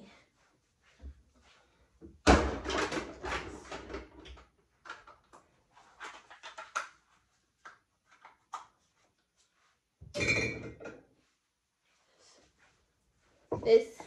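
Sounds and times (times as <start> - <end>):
clatter of kitchen items: 2.2 - 7.0, 10.0 - 11.1.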